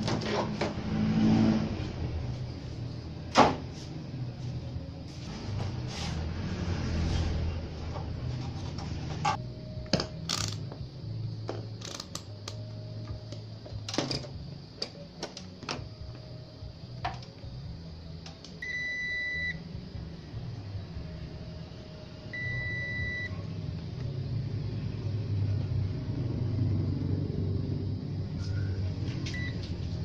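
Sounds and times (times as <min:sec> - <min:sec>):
multimeter high beep: 0:18.6 - 0:19.6, 0:22.3 - 0:23.3, 0:29.3 - 0:29.6.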